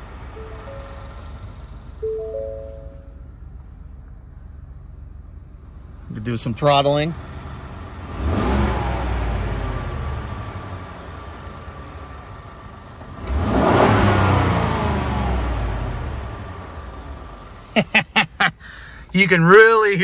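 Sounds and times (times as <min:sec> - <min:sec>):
truck engine revving: 0:07.0 - 0:11.7, 0:13.0 - 0:17.9.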